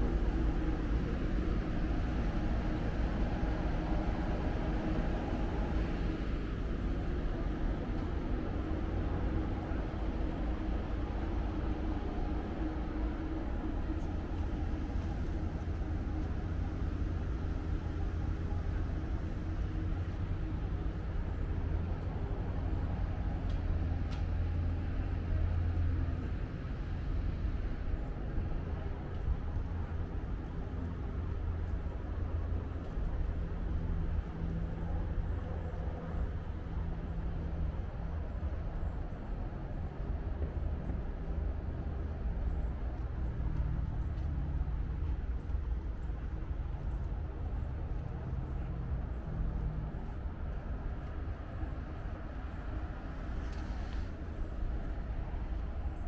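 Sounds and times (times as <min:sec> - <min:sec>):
train low rumble and hum: 0:00.0 - 0:56.0
faint ticks: 0:18.9 - 0:56.0.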